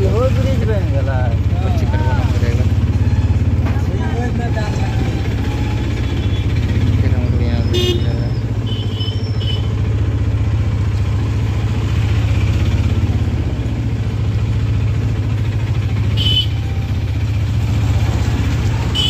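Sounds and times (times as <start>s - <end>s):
auto-rickshaw engine throbbing: 0.0s - 19.0s
vehicle horn toots: 7.6s - 9.8s, 16.1s - 16.8s.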